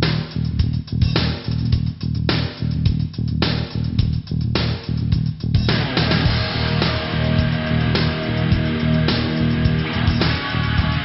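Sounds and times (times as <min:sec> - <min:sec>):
guitar and bass music: 0:00.0 - 0:11.0
steady beat: 0:00.0 - 0:11.0
cymbal crashes: 0:05.7 - 0:11.0.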